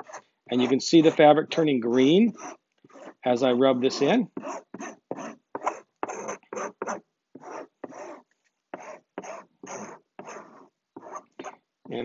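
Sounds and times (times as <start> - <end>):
stick scraping over fabric: 0.0 - 12.0.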